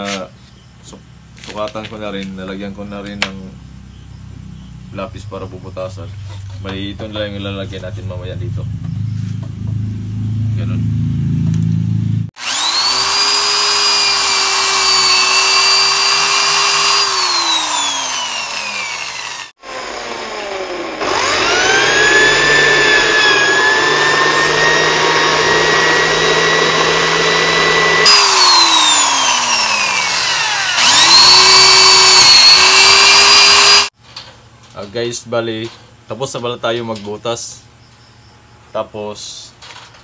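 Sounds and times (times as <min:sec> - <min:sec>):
electric drill whining: 0:12.4 - 0:34.0.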